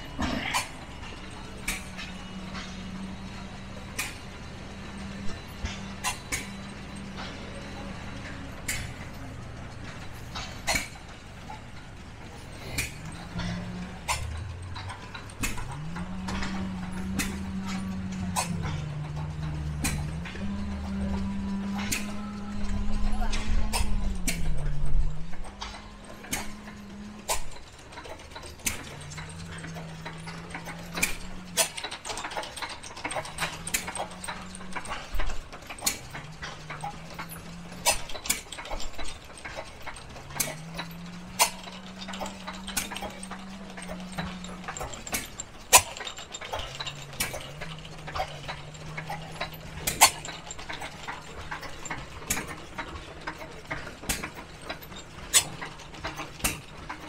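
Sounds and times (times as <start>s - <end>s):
stationary gas engines popping: 0.0s - 57.0s
low hum rising in pitch: 12.9s - 27.5s.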